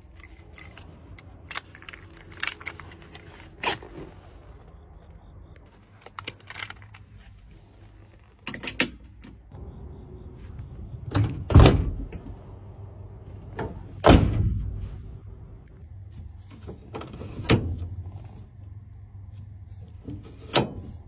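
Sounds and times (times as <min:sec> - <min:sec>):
heavy metal van door clunks: 0:11.1 - 0:12.2, 0:13.6 - 0:14.8.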